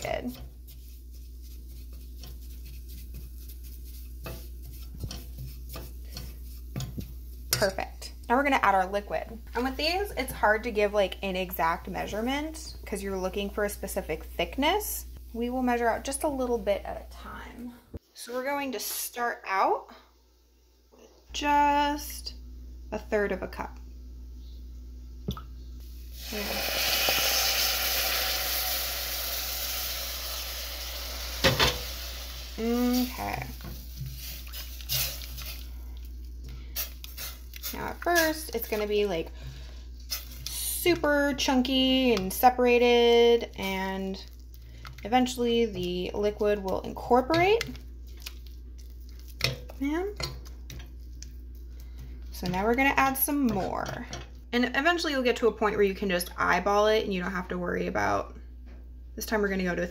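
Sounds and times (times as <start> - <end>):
milk sizzling in hot roux: 0.0 - 16.7, 25.8 - 53.4.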